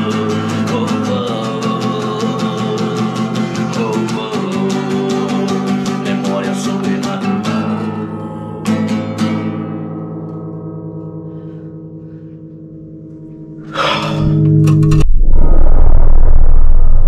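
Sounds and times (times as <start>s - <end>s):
man singing: 0.0s - 8.8s
nylon-string guitar: 0.0s - 16.0s.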